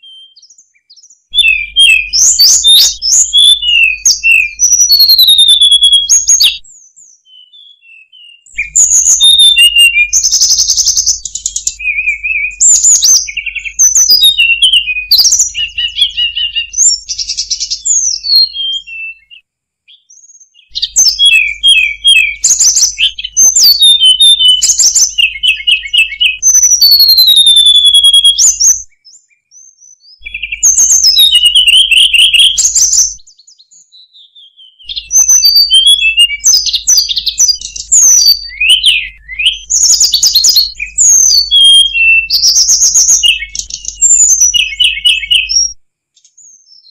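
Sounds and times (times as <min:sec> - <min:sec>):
bird singing high chirps and trills: 0:00.0 - 0:46.9.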